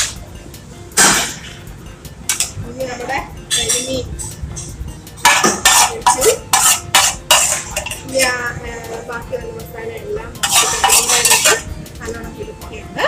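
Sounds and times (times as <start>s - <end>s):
steel ladle scraping metal: 5.2s - 8.3s, 10.4s - 11.7s.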